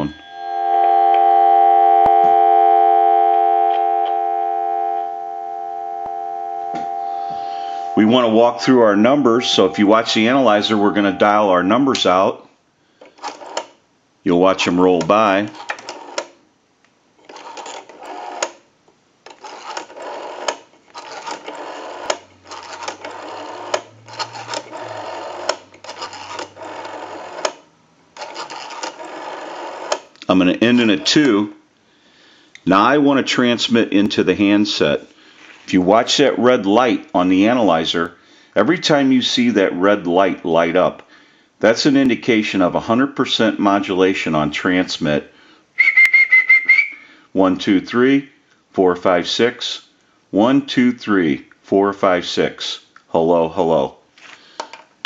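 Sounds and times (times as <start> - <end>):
telephone dial tone: 0.2 - 12.0, 13.2 - 13.6, 15.8 - 16.2, 17.4 - 18.5, 19.4 - 27.6, 28.2 - 30.0
rotary phone dial whirring and clicking: 13.0 - 13.7, 15.5 - 16.4, 17.2 - 18.6, 19.3 - 27.6, 28.2 - 30.1.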